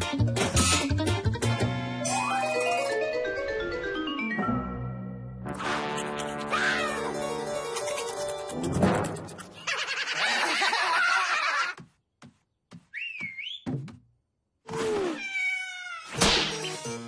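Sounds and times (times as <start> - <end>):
wavering whistle: 12.9 - 13.6.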